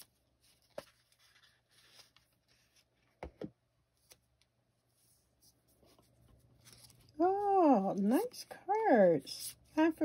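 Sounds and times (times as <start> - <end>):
paper packaging rustling: 0.0 - 3.2, 6.0 - 8.1.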